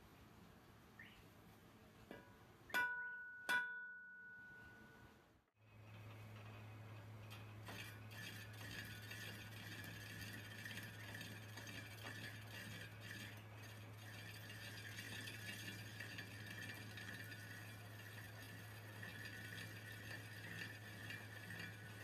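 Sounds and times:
lathe motor hum: 7.6 - 22.0.

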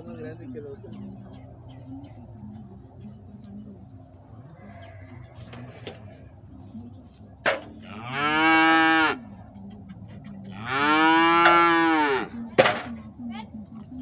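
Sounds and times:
calf mooing: 4.4 - 6.4, 7.8 - 9.2, 10.5 - 12.4.

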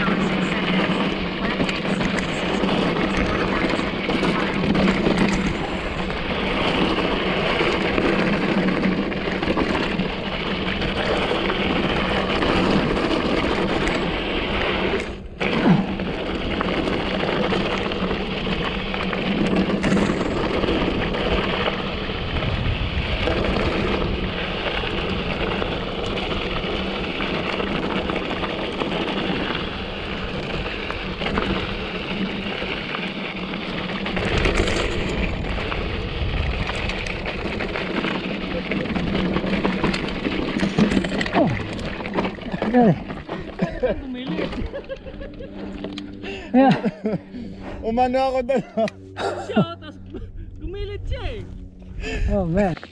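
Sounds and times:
tyre noise on dirt: 0.0 - 47.8
bike rattle: 0.0 - 50.8
wind on microphone: 22.1 - 25.6.

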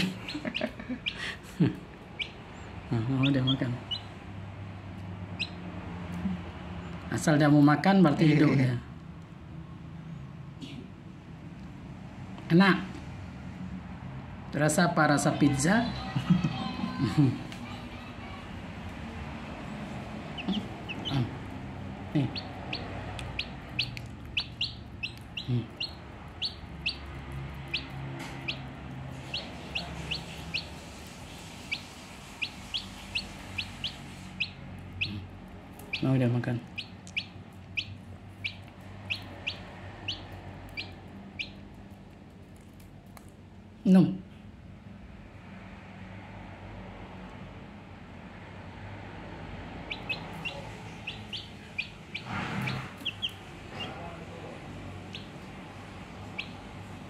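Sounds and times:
chick peeping: 0.0 - 1.4, 2.0 - 4.2, 5.3 - 5.6, 19.6 - 41.9, 49.8 - 57.0.

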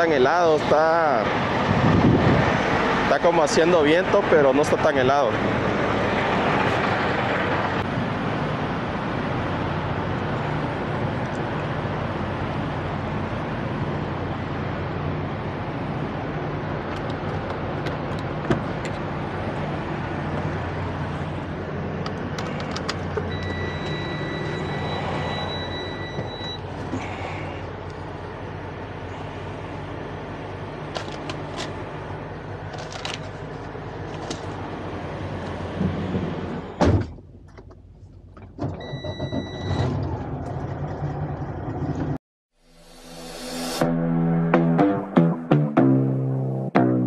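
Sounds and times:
diesel truck engines idling: 0.0 - 38.5
wind noise: 1.3 - 3.1
high-pitched beep: 23.3 - 26.6.

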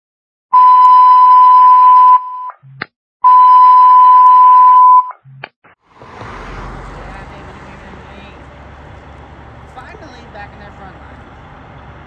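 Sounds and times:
high radio alert beep: 0.6 - 5.4.

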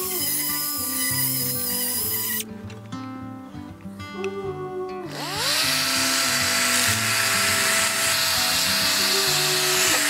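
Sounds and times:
background music: 0.0 - 10.0
electric sander on wood: 5.1 - 10.0.

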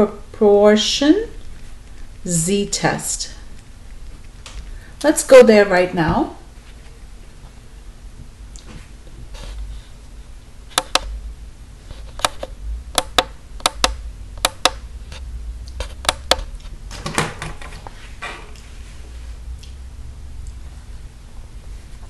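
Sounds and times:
calculator sharp clicks: 10.7 - 11.1, 12.1 - 14.8, 15.8 - 16.5.

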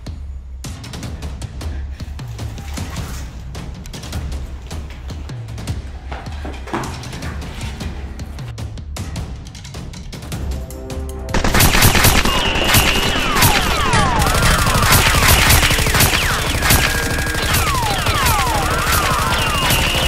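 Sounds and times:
background music: 0.0 - 20.0
rapid gunfire sound effects: 11.4 - 20.0.

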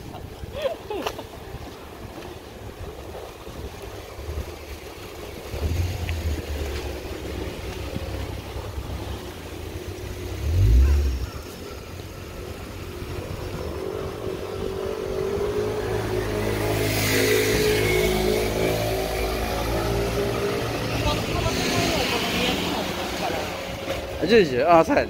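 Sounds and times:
road noise: 0.0 - 25.0
car engine: 5.1 - 24.3.

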